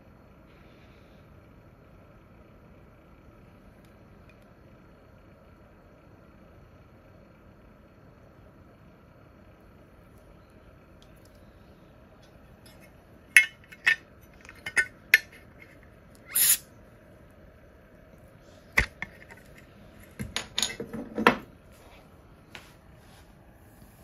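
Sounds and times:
short hiss: 16.2s - 16.7s.

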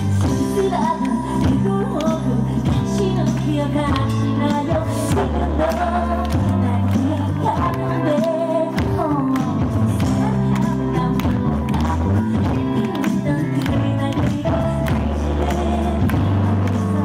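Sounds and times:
backing track with beat and bass: 0.0s - 17.0s
woman singing into microphone: 0.0s - 17.0s.

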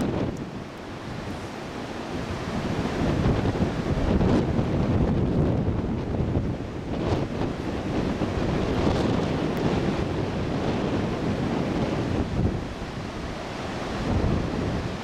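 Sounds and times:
gusty wind buffeting microphone: 0.0s - 15.0s
heavy surf breaking: 0.0s - 15.0s.

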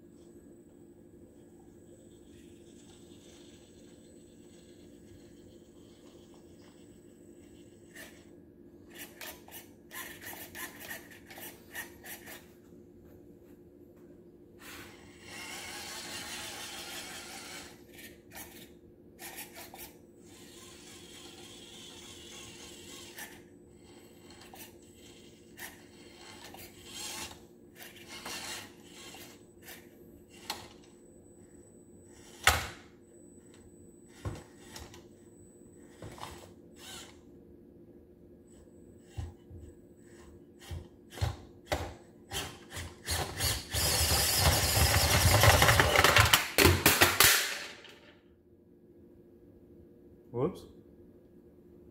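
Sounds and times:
toy truck electric motor and gears: 1.4s - 12.5s, 14.6s - 30.9s, 32.1s - 32.8s, 34.1s - 35.2s, 35.8s - 37.2s, 38.5s - 46.4s.

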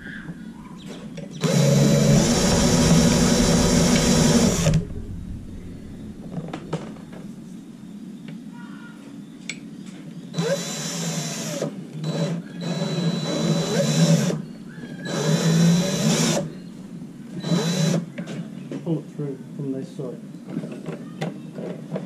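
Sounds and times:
cordless drill running: 1.4s - 4.8s, 10.4s - 14.4s, 15.1s - 16.5s, 17.4s - 18.0s.

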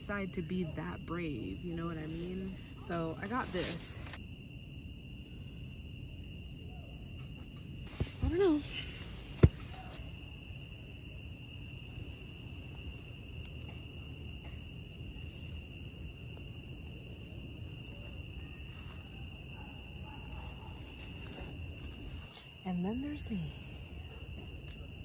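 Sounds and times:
crickets trilling: 0.0s - 25.0s
low rustle of movement: 2.0s - 4.2s, 7.8s - 10.0s.

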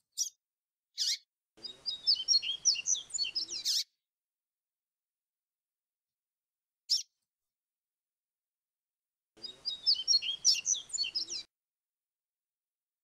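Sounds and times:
bird singing whistled trills: 1.0s - 3.9s, 9.4s - 11.5s.

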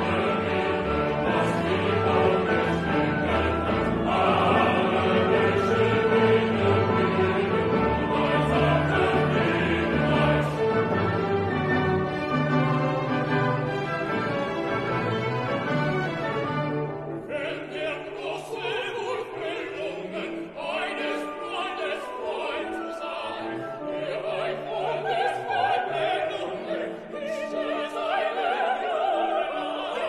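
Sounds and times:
operatic singing voice: 0.0s - 10.9s, 17.2s - 30.0s
orchestra playing: 0.0s - 29.8s.

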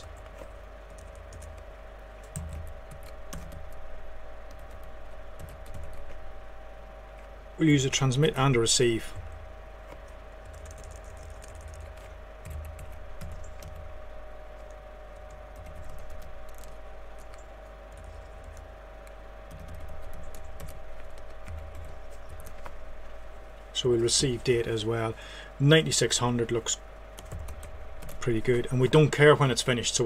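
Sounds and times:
keyboard typing clicks: 0.0s - 3.8s, 10.0s - 13.9s, 14.6s - 22.7s, 27.2s - 28.3s
steady hum: 0.0s - 30.0s.

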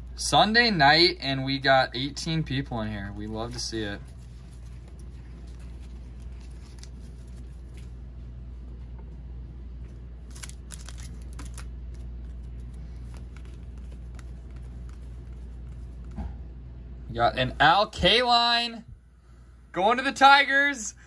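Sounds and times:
low hum: 1.1s - 18.1s
card pack wrappers crinkling and tearing: 3.2s - 8.0s, 10.2s - 16.0s.

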